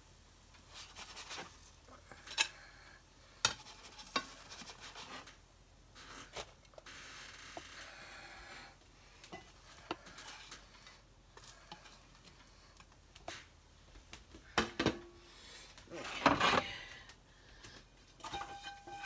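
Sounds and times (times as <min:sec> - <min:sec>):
spatula scraping a skillet: 0:00.6 - 0:02.7, 0:03.4 - 0:05.4, 0:09.3 - 0:13.5, 0:18.1 - 0:19.0.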